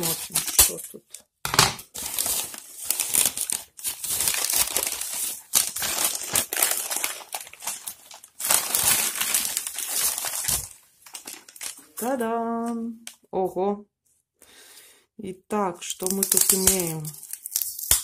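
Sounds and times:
newspaper crinkling and rustling: 0:00.0 - 0:01.0, 0:01.9 - 0:12.2.

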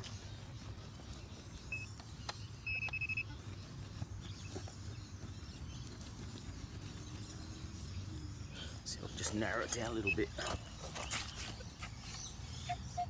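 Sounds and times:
metal detector beeps: 0:01.7 - 0:02.0, 0:02.6 - 0:03.3, 0:10.0 - 0:10.7.

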